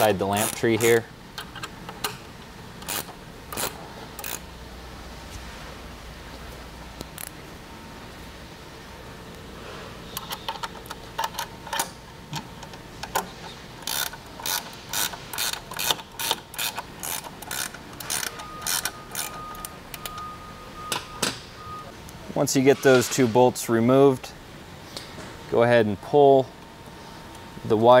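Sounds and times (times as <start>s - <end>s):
wrench clicking on bolts: 0.3s - 2.2s, 2.8s - 4.4s, 10.2s - 20.2s.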